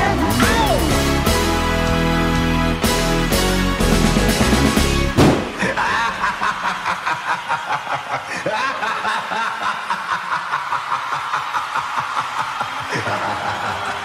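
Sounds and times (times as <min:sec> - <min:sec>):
song music ending on hit: 0:00.0 - 0:05.6
man laughing menacingly: 0:05.6 - 0:14.0.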